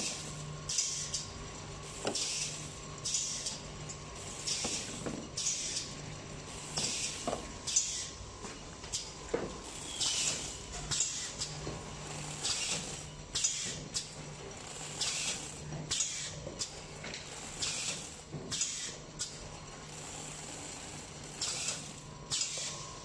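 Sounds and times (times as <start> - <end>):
pneumatic air hisses: 0.0 - 1.2, 2.0 - 3.6, 4.2 - 5.9, 6.6 - 8.2, 9.9 - 11.6, 12.4 - 13.8, 15.0 - 16.7, 17.6 - 19.0, 21.4 - 22.8.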